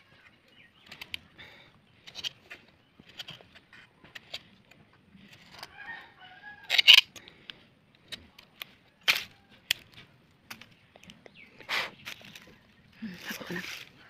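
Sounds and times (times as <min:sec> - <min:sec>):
sharp clicks and rustles: 0:00.0 - 0:05.8, 0:06.6 - 0:14.0
rooster crowing: 0:05.7 - 0:06.7.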